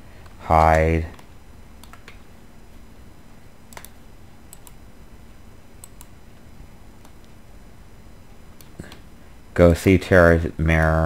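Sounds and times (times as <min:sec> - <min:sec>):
keyboard and mouse clicks: 0:00.2 - 0:02.2, 0:03.7 - 0:04.8, 0:05.8 - 0:06.1.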